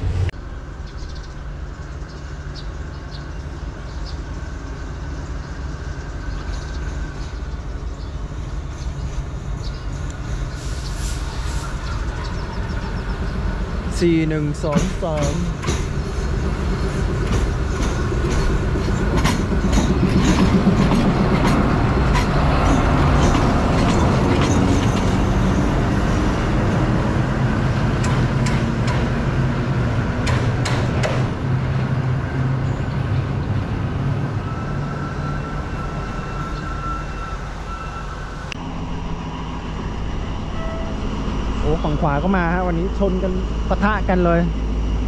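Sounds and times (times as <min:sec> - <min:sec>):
locomotive engine humming: 0:00.0 - 0:45.0
train wheels clacking over rails: 0:14.0 - 0:26.8, 0:27.6 - 0:29.5, 0:30.1 - 0:31.9.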